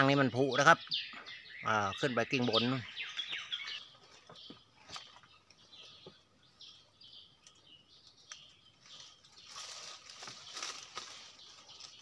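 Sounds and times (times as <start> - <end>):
faint birds chirping: 0.0 - 12.0
clicks and knocks of tree branches: 3.2 - 6.2, 7.4 - 12.0.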